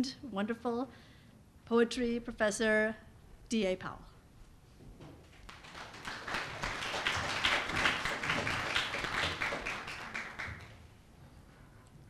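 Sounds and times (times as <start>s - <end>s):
audience applauding: 5.3s - 10.9s.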